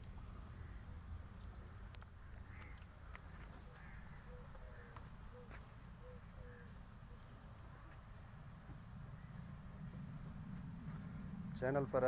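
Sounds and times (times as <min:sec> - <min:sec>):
low steady rumble: 0:06.1 - 0:12.0.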